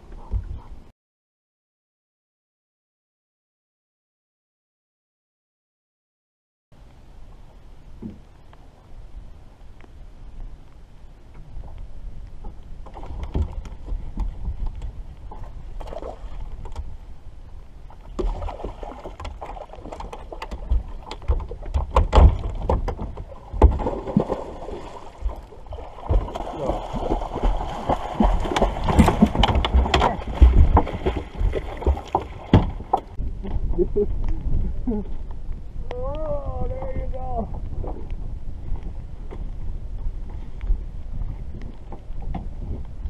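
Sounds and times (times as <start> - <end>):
water splashing and sloshing: 10.5 - 35.3.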